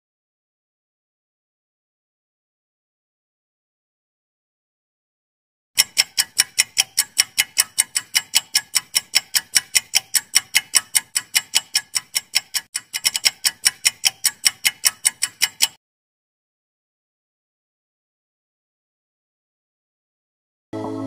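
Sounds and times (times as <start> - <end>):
fast clock ticking: 5.8 - 15.8.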